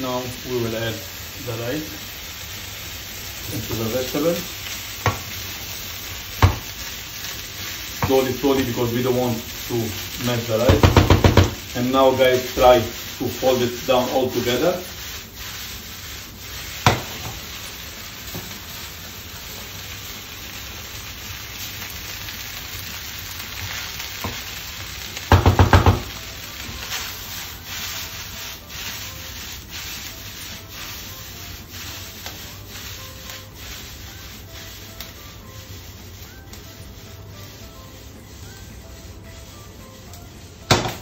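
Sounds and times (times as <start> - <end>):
rice sizzling in a hot pan: 0.0 - 41.0
wooden spoon knocking on pan: 5.0 - 5.3, 6.4 - 6.7, 10.7 - 11.6, 16.8 - 17.4, 25.3 - 26.2, 40.7 - 41.0.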